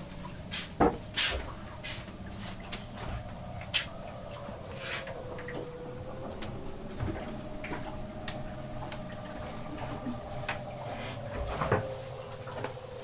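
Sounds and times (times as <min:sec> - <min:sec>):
steady low hum: 0:00.0 - 0:13.0
faint wavering tone: 0:01.5 - 0:13.0.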